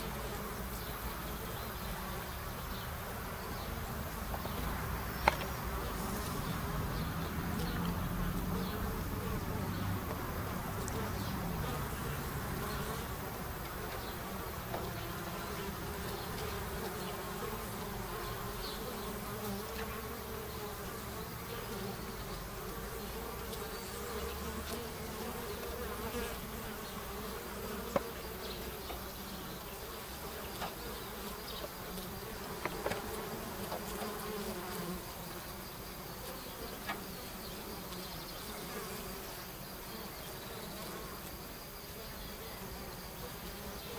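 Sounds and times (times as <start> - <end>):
bees buzzing: 0.0 - 43.9.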